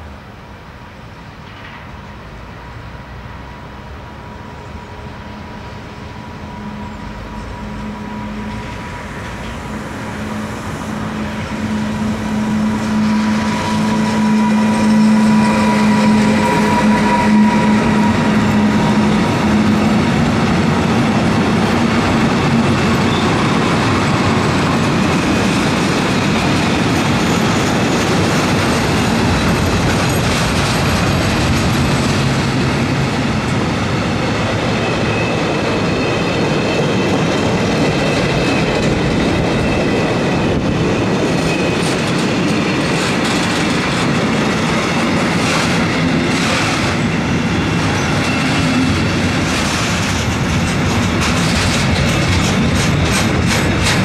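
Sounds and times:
train wheels on rails: 0.0s - 54.0s
electric locomotive hum: 0.1s - 54.0s.

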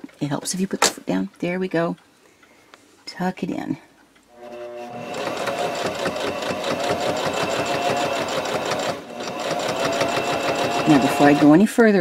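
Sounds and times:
electric sewing machine stitching: 4.4s - 11.7s.

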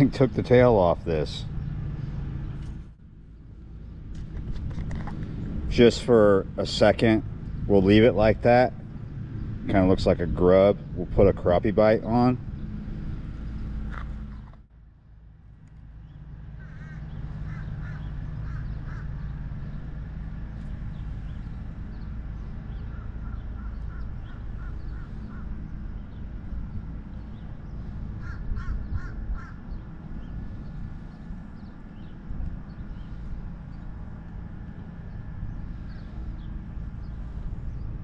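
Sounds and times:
steady low rumble: 0.0s - 38.0s
crow cawing: 16.6s - 19.2s, 22.9s - 25.6s, 28.2s - 29.6s.

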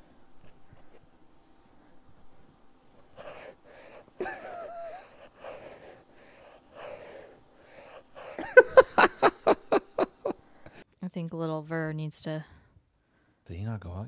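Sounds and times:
people laughing: 4.2s - 5.2s, 8.4s - 10.3s.

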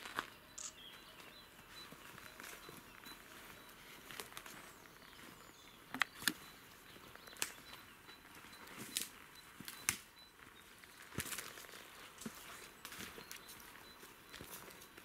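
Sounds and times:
twigs snapping: 9.0s - 10.0s.

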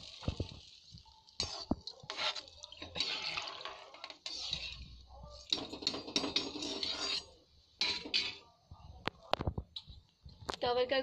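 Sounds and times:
metal pot rattling and scraping: 0.0s - 8.4s.

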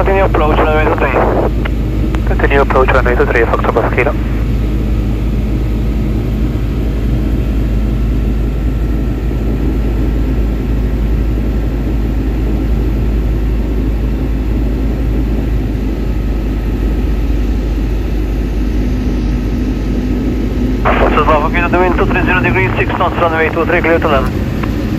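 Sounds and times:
faint high whine: 0.0s - 4.6s, 13.2s - 24.9s
aircraft engine and propeller droning: 0.0s - 24.9s.

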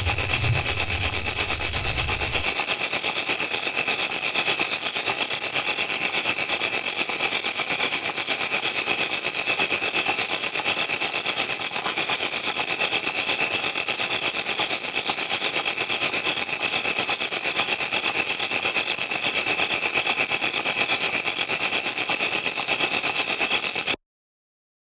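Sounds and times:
crickets chirping: 0.0s - 2.5s.

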